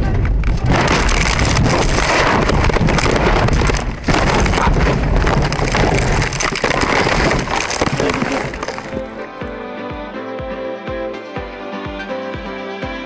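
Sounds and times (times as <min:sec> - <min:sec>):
car rolling over impacts: 0:00.4 - 0:09.2.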